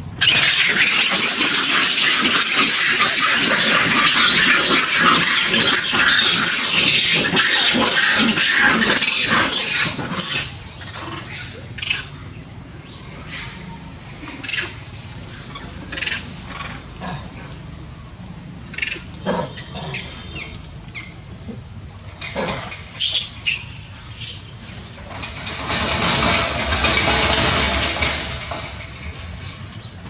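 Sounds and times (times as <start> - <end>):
monkeys calling: 0.0 - 17.8, 18.6 - 27.2
high-pitched squeaks and chirps: 0.2 - 10.5.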